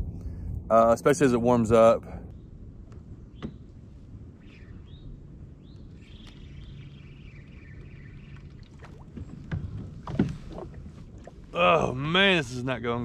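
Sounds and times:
faint steady hum: 0.0 - 13.0
water washing along kayak hull: 6.0 - 12.8.

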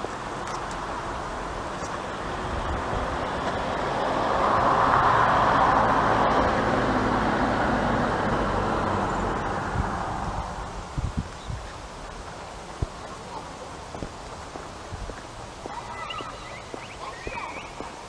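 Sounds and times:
vehicle driving past: 2.1 - 11.0.

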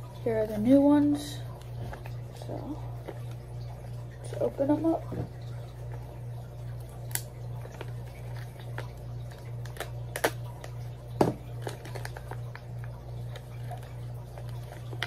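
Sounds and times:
steady low hum: 0.0 - 15.0
plastic bag crinkling: 11.4 - 15.0.

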